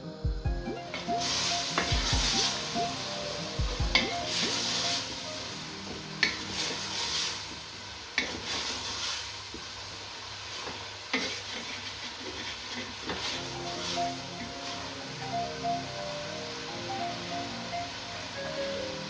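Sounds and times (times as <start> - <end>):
meat sizzling in a pot: 0.9 - 19.0.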